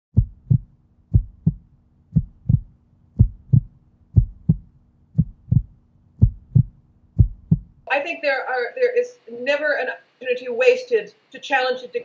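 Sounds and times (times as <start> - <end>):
heartbeat thumps: 0.1 - 7.8
faint low drone: 0.2 - 7.8.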